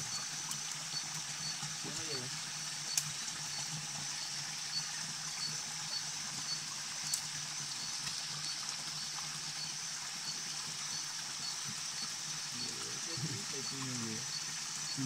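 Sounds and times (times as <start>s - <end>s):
running water rushing: 0.0s - 15.0s
small clicks: 7.1s - 7.3s.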